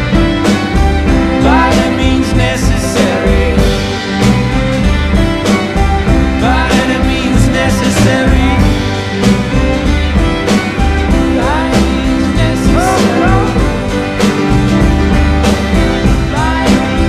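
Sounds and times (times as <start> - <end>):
bass: 0.0 - 17.0
drum beat: 0.0 - 17.0
sustained guitar chords: 0.0 - 17.0
short sliding high notes: 12.7 - 14.2.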